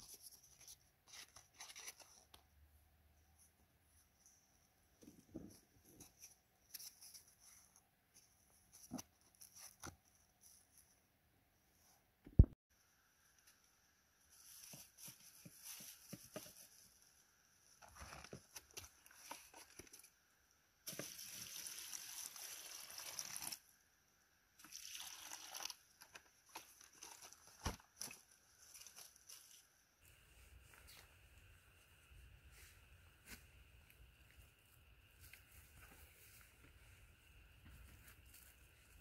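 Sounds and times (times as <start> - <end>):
water pouring into bucket: 21.0 - 23.6, 24.6 - 25.8.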